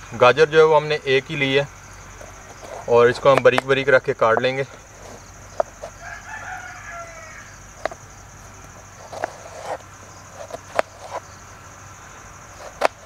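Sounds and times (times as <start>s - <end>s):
rooster crowing: 5.8s - 7.8s.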